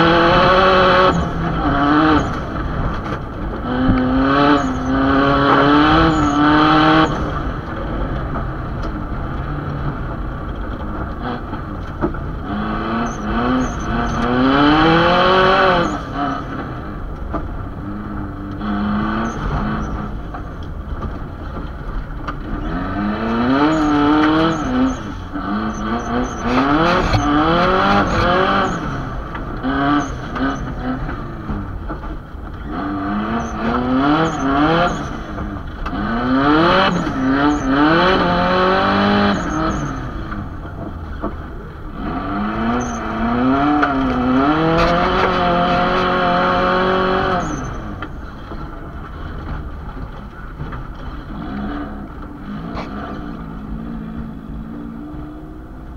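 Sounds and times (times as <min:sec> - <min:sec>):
car engine revving: 0:00.0 - 0:55.9.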